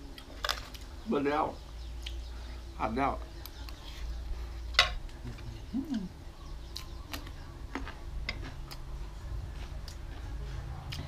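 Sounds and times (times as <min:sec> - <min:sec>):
low steady rumble: 0:00.0 - 0:11.0
person chewing: 0:06.7 - 0:11.0.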